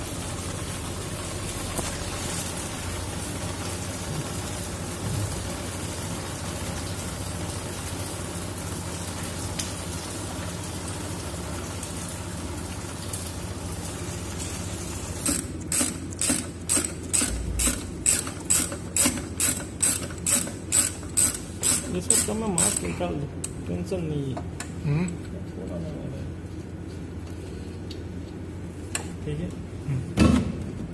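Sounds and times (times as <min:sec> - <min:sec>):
low machinery hum: 0:00.0 - 0:30.9
ratchet wrench clicking: 0:15.2 - 0:22.9.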